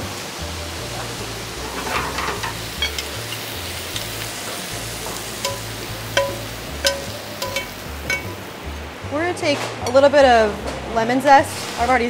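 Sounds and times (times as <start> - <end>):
hot pan sizzling: 0.0 - 9.1
metal tongs clinking on pan and bowl: 1.6 - 8.5.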